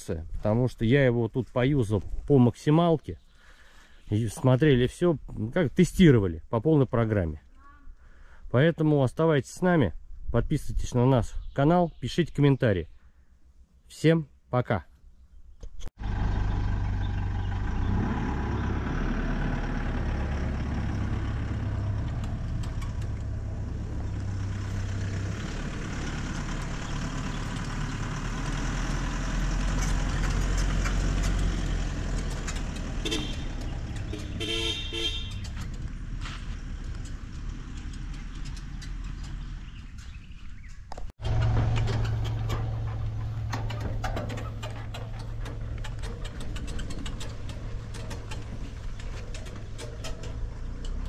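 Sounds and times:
vehicle engine rumbling: 15.2 - 51.0
horn toot: 33.0 - 35.6.

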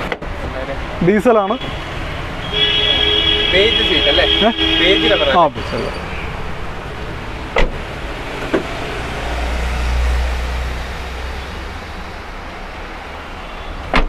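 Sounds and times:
outdoor background noise: 4.2 - 14.0
car door clicks: 7.5 - 7.8.

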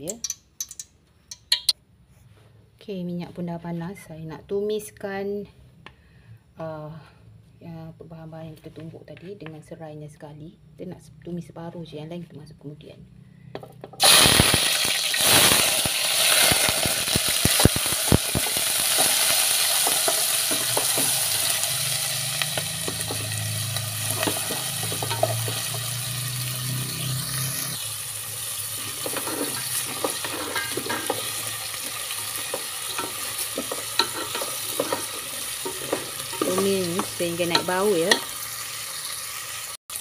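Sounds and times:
paste sizzling in hot oil: 14.0 - 40.0
wooden spatula scraping pot: 24.0 - 25.9, 28.8 - 38.4.

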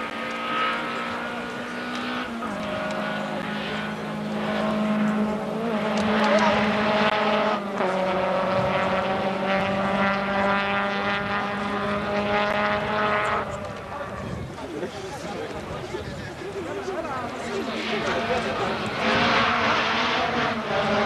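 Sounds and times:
rally car engine at high revs: 0.0 - 14.2, 16.8 - 21.0.

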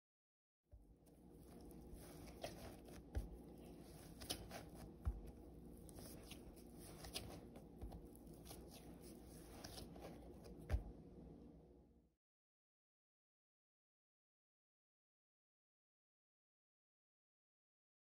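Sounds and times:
low steady hum: 0.8 - 12.1
rustling: 1.0 - 10.9.

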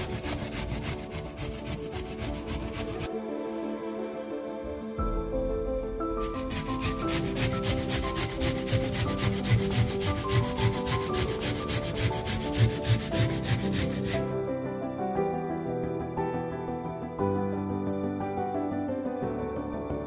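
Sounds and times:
onion grated on metal grater: 0.0 - 3.1, 6.2 - 14.4
background music: 0.0 - 20.0.

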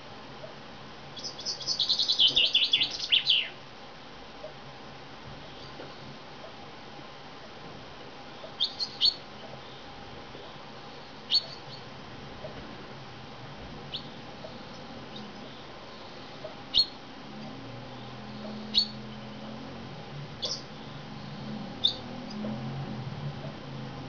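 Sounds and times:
chaffinch chirping: 1.2 - 3.6, 8.3 - 10.6, 11.2 - 11.9, 13.9 - 17.1, 17.8 - 19.6, 20.4 - 22.4.

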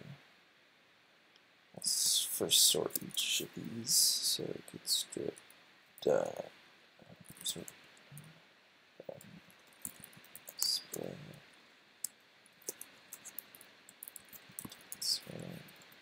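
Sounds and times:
computer keyboard keys clicking: 9.5 - 11.1, 12.6 - 15.9.

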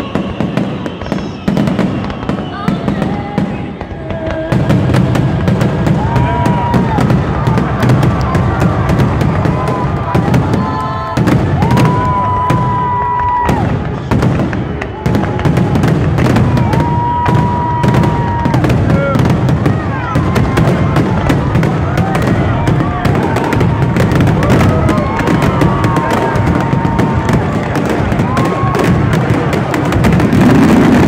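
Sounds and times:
high whistling tone: 0.0 - 3.8
firework crackling: 0.0 - 31.0.

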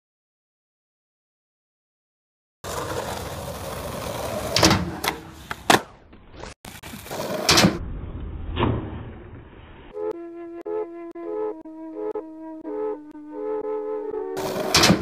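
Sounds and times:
skateboard wheels rolling on concrete: 2.6 - 9.9, 14.4 - 14.8
skateboard clacks and slaps: 2.7 - 6.0.

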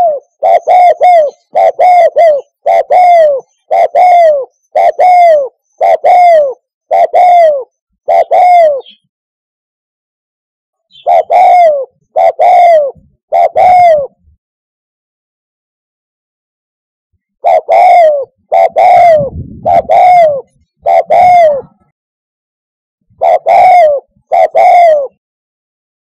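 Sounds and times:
dove cooing: 0.0 - 9.1, 10.9 - 14.4, 17.4 - 21.9, 23.1 - 25.2.

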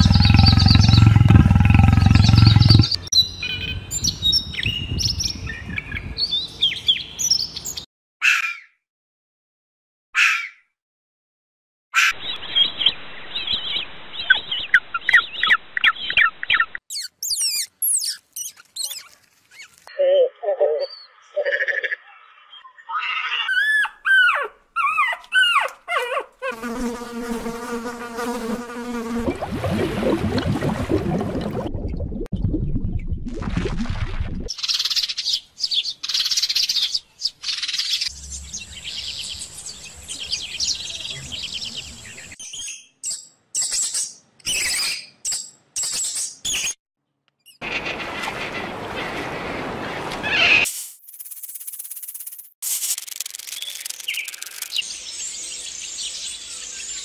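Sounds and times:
rough noisy sound: 0.0 - 3.0
mouse squeaking: 16.9 - 19.7
fly buzzing: 26.4 - 29.4.

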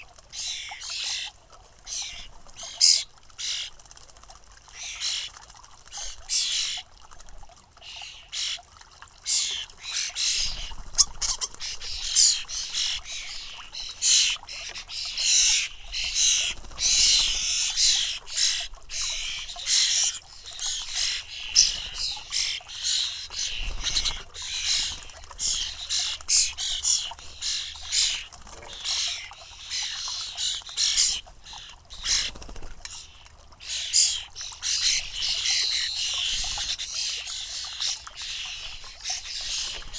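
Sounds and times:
bird fledglings begging calls: 0.0 - 1.3, 1.9 - 3.7, 4.7 - 5.3, 9.2 - 39.9.

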